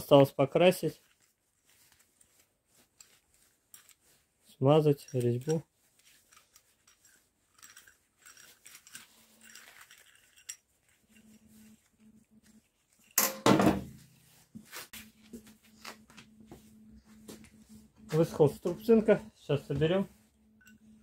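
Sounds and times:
metal clamp clicks and scrapes: 2.9s - 4.0s, 5.0s - 11.3s
clamp clunk on steel workbench: 13.2s - 13.9s.

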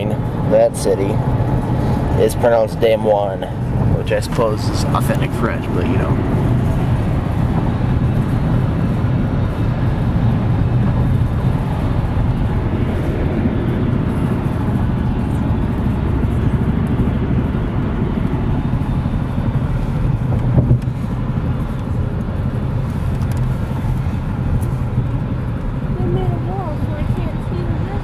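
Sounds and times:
road and engine rumble in car: 0.0s - 28.0s.

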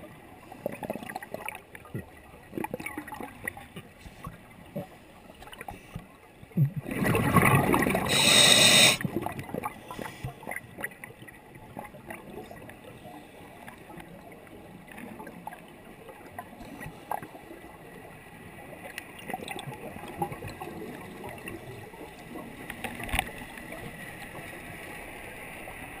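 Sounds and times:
faint underwater crackling: 0.0s - 26.0s
underwater scuba bubbles rushing: 6.5s - 26.0s.

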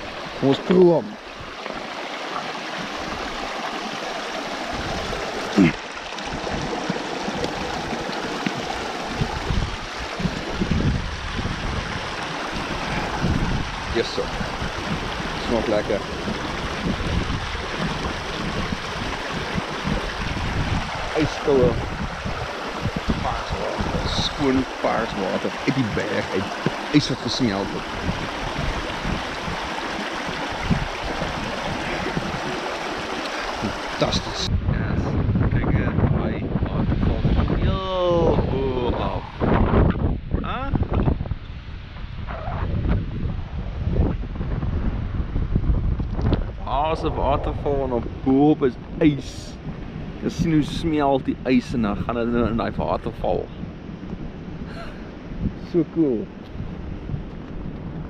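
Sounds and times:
stream splashing over rocks: 0.0s - 34.5s
low rumbles: 4.2s - 58.0s.

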